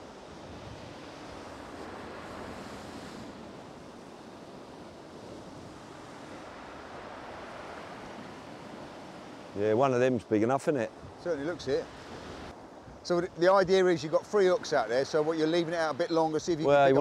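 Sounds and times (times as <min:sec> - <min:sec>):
waves breaking on shingle beach: 0:00.0 - 0:12.5.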